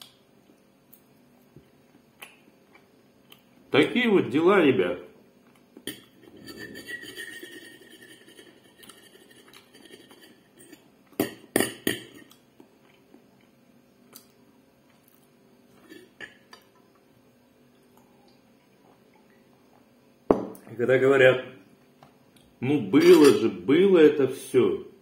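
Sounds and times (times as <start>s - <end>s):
cutlery scraping a plate: 5.9s - 10.8s, 23.0s - 23.4s
cutlery clinking on a plate: 23.0s - 23.4s.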